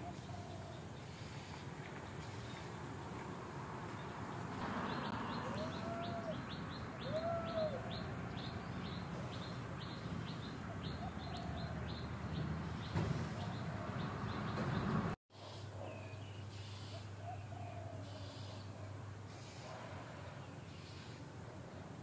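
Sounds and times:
background noise: 0.0 - 22.0
bird chirping: 4.0 - 19.5
lower arched bird calls: 4.8 - 19.6, 20.4 - 21.3.

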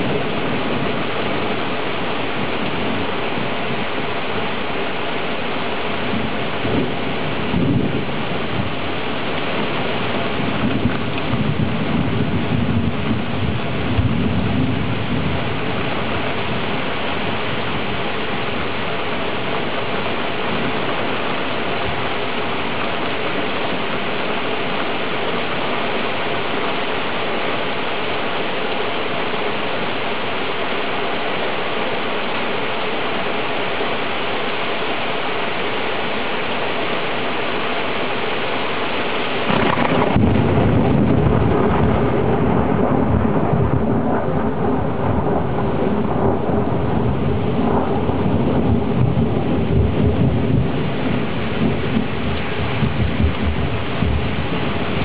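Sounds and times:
thunder rumbling: 0.0 - 26.4, 39.3 - 55.0
rain hissing: 0.0 - 55.0.

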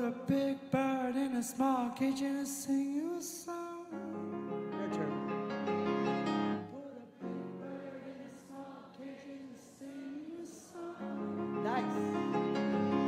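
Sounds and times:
audience singing: 6.6 - 13.0.

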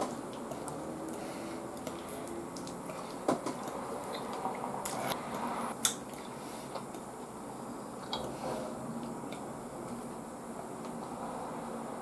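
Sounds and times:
soft wet eating sounds: 0.1 - 5.2.

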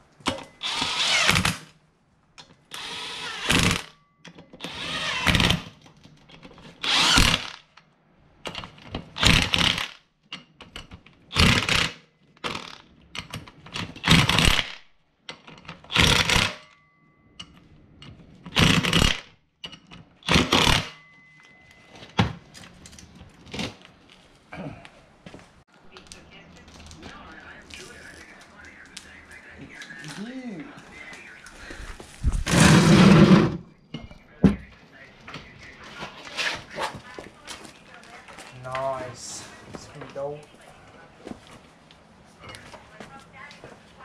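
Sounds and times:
impact driver bursts: 0.6 - 1.7, 2.8 - 4.0, 4.6 - 5.6, 6.8 - 7.7, 11.4 - 12.8, 15.9 - 16.7.

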